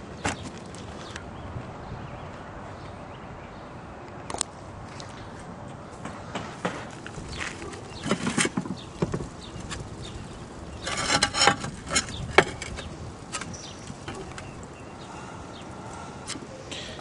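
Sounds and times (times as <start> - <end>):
boots shifting on roof tiles: 6.0 - 10.0, 10.8 - 14.6
tile scraping: 10.8 - 12.8.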